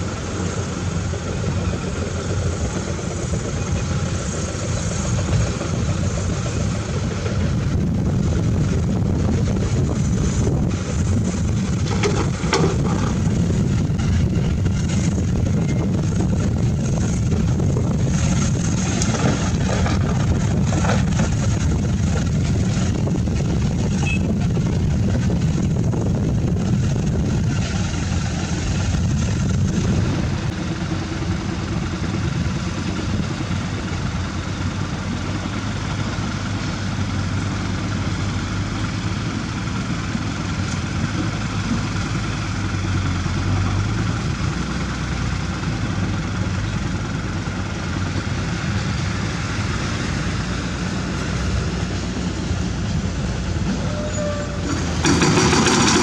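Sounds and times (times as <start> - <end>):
dump truck engine hum: 0.0 - 56.0
excavator diesel engine: 0.0 - 56.0.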